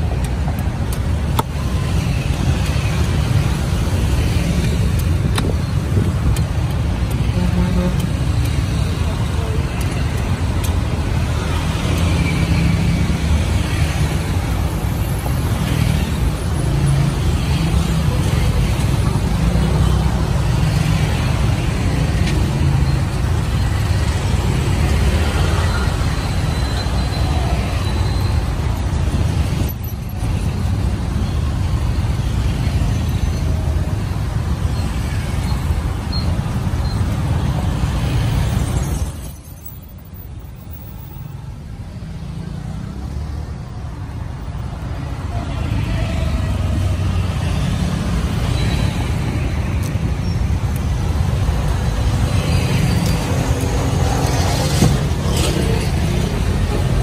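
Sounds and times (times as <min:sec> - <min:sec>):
street traffic rumble: 0:00.0 - 0:57.0.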